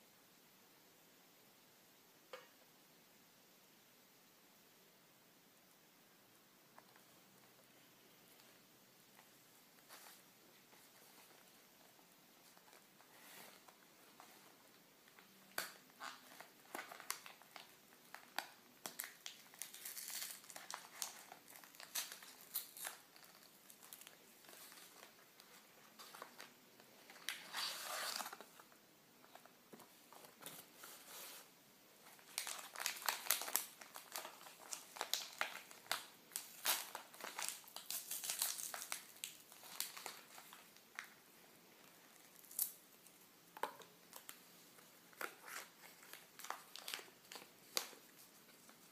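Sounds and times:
packaging crinkling and rustling: 12.4 - 41.2, 43.6 - 48.9.

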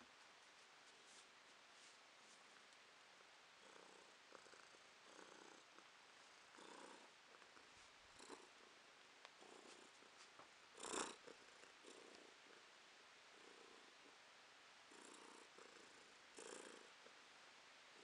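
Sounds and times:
cat purring: 3.6 - 14.2, 14.8 - 17.2.

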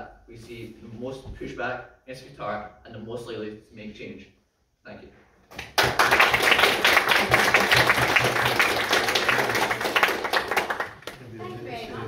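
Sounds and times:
audience clapping: 5.5 - 11.5.

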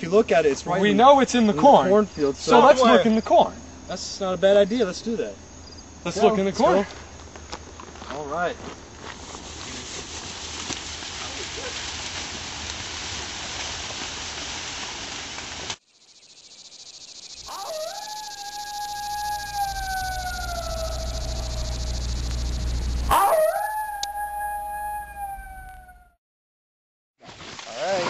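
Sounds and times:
canine howls: 17.5 - 26.2
low rumble: 18.9 - 23.2.

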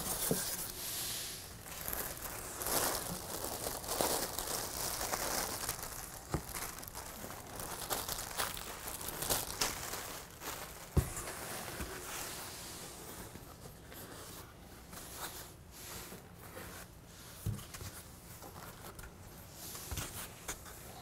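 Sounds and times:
foam packing rustling and scraping: 0.0 - 21.0.

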